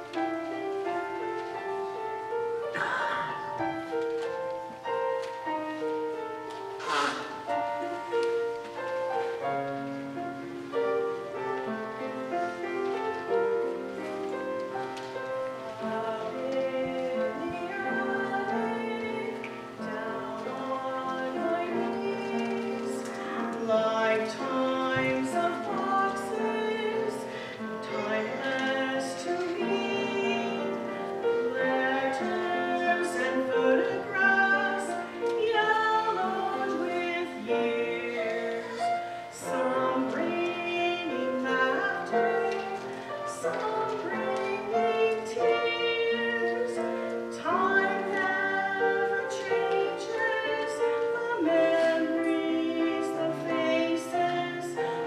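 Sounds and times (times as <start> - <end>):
women singing: 15.2 - 55.0.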